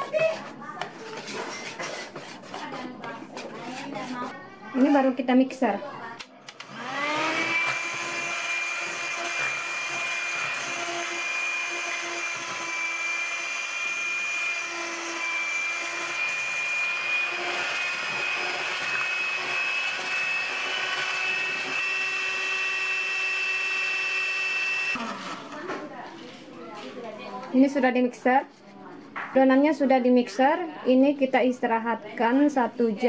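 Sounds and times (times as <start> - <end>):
electric mixer whining: 6.5 - 25.6.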